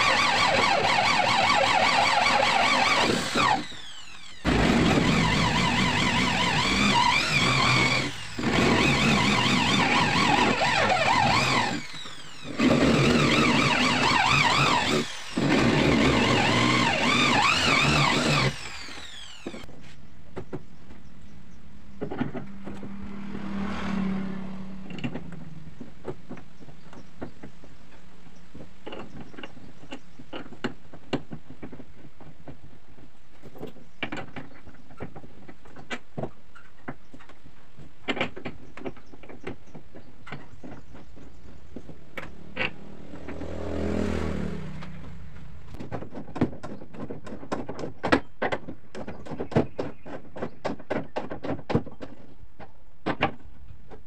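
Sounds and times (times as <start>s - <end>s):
power tool motor running: 0.0s - 19.7s.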